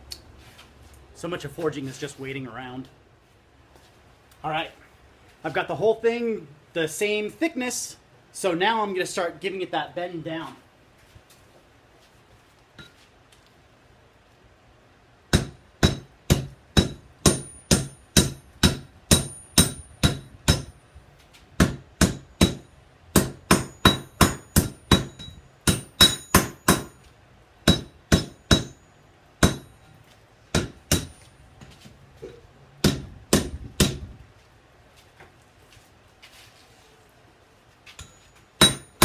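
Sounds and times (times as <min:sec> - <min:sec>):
hammer striking metal on anvil: 0:15.3 - 0:20.7, 0:23.2 - 0:27.0, 0:27.7 - 0:28.8, 0:29.4 - 0:29.8, 0:30.6 - 0:31.3, 0:38.0 - 0:39.0.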